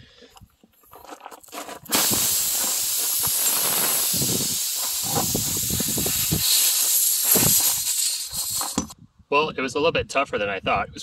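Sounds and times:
tool rubbing in hole: 1.4 - 9.0
air hissing from tyre: 1.8 - 9.0.

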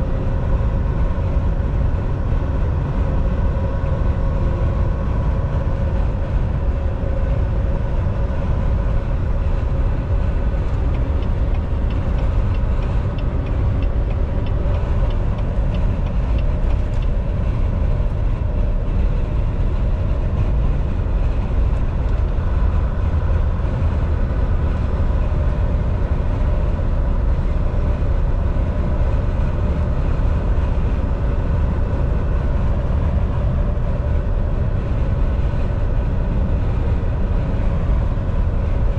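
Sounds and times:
faint constant whine: 0.0 - 38.9
truck engine and road drone: 0.0 - 38.9.

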